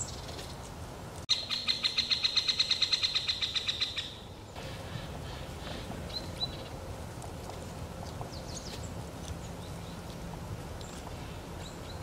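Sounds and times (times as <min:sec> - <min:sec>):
high bird chirps: 0:01.3 - 0:05.4.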